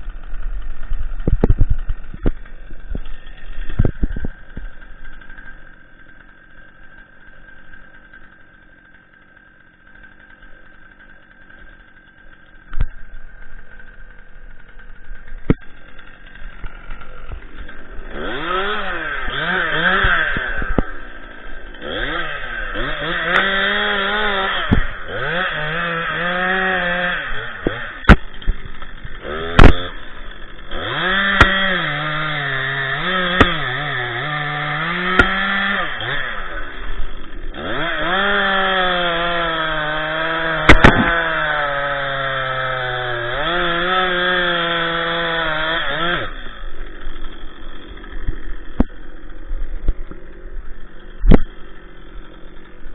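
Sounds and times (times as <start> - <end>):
chainsaw cutting log: 0.0 - 52.9
sharp knocks: 40.6 - 41.3.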